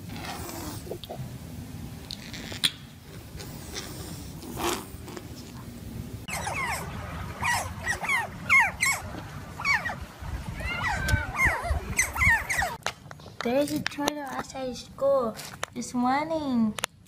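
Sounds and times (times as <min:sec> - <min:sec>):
otters chirping: 0:06.3 - 0:12.8.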